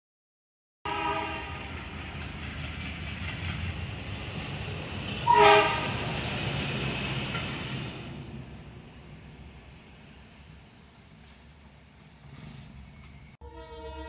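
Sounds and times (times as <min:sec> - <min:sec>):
electronic train whistle: 0:00.9 - 0:01.6, 0:05.2 - 0:05.9, 0:13.4 - 0:14.0.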